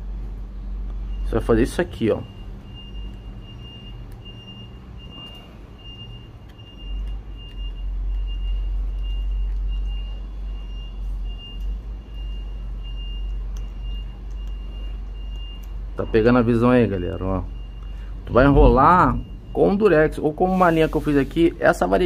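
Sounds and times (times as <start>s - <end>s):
electronic beeping: 12.2s - 21.1s
low rumble: 17.5s - 21.2s.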